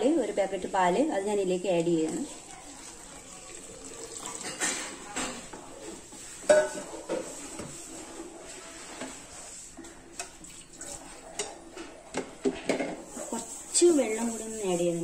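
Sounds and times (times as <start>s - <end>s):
metal spoon stirring and scraping: 1.7s - 15.0s
milk pouring into pot: 2.2s - 6.0s
spoon clinking on pot: 6.4s - 6.9s.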